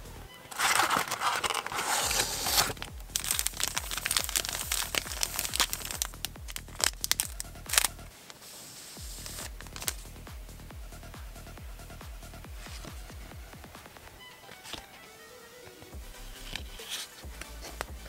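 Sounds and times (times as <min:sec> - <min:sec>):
electronic dance music: 0:00.0 - 0:14.4, 0:16.0 - 0:18.0
plastic wrappers crinkling: 0:00.5 - 0:08.0, 0:09.2 - 0:10.0.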